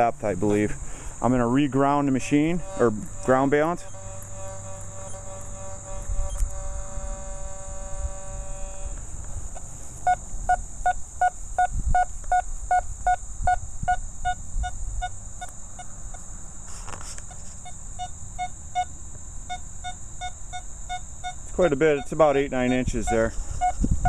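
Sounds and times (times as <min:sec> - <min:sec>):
metal detector steady tone: 0:00.0 - 0:16.2, 0:16.8 - 0:24.0
metal detector short beeps: 0:02.6 - 0:06.7, 0:19.5 - 0:23.8.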